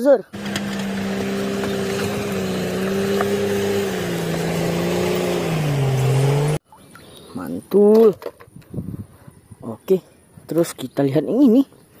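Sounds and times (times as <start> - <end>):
bulldozer diesel engine under load: 0.4 - 6.6.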